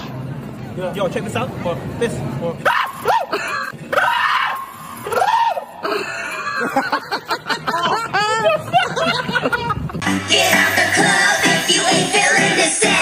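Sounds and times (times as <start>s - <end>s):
people screaming: 2.6s - 6.1s.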